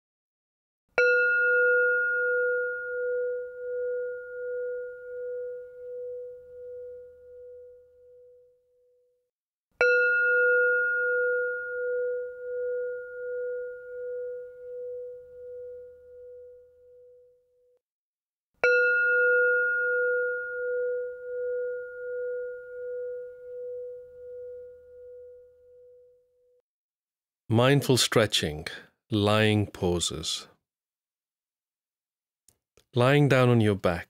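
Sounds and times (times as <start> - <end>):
singing bowl ringing: 1.0 - 9.2, 9.8 - 17.8, 18.6 - 26.6.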